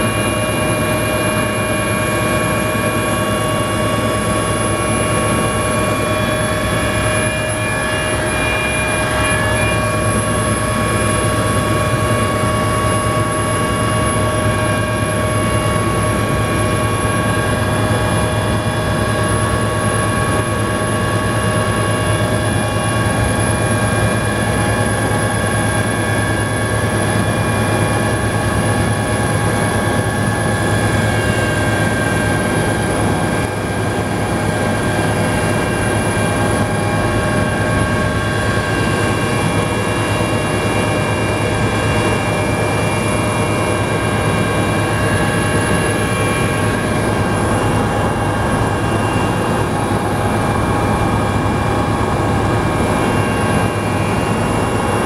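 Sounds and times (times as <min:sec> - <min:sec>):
helicopter engine and rotor drone: 0:00.0 - 0:55.0
high-pitched whining tones: 0:00.0 - 0:55.0.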